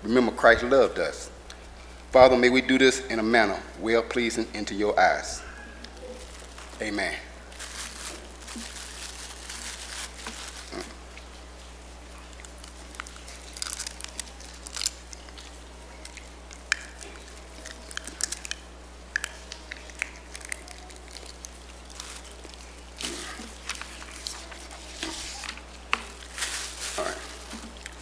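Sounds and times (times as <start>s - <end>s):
plastic packaging crinkling: 5.8s - 11.2s, 12.0s - 28.0s.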